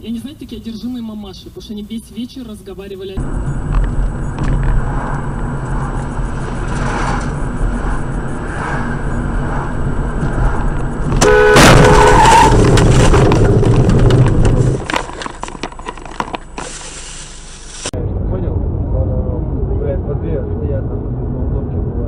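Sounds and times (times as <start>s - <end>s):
car cabin road noise: 0.0s - 19.4s
rough collision noise: 3.2s - 17.9s
loud bang: 4.4s - 14.8s
car horn blast: 11.1s - 13.1s.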